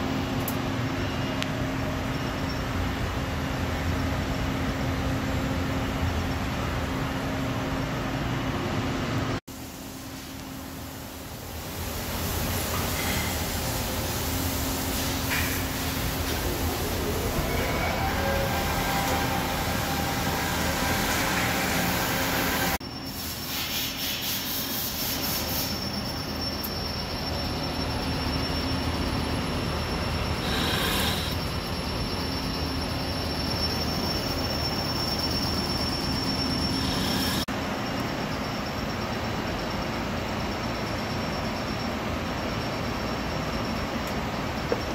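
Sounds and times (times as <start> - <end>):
steady machine hum: 0.0 - 23.3, 24.6 - 44.9
high whining cutter on metal: 33.4 - 37.5.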